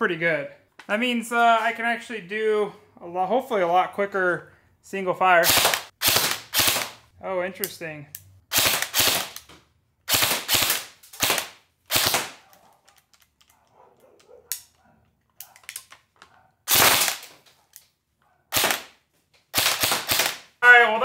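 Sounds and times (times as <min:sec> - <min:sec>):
airsoft rifle firing bursts: 0:05.4 - 0:07.0, 0:08.5 - 0:09.4, 0:10.1 - 0:12.4, 0:16.7 - 0:17.3, 0:18.5 - 0:18.9, 0:19.5 - 0:20.5.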